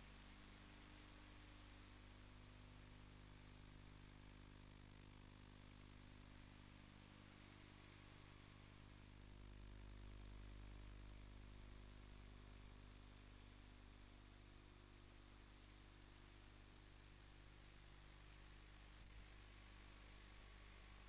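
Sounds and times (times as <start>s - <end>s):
constant hiss: 0.0s - 3.6s, 13.3s - 21.0s.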